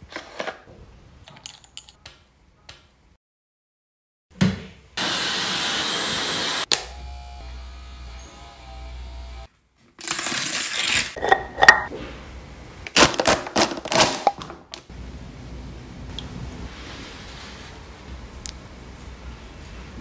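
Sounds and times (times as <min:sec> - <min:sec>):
hair dryer blowing: 0:05.0 - 0:09.5
jar clicks and knocks: 0:11.2 - 0:11.9.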